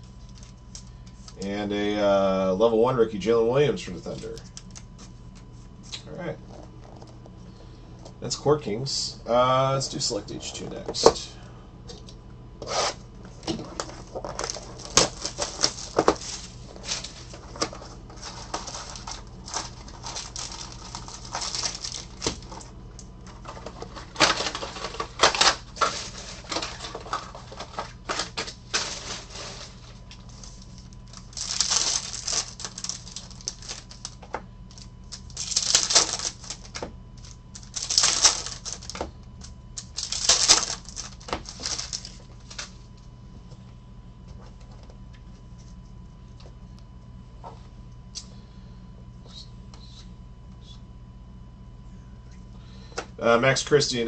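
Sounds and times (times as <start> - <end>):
foil packs tearing: 12.6 - 39.1, 39.8 - 42.8
plastic wrapper crinkling: 13.3 - 43.0.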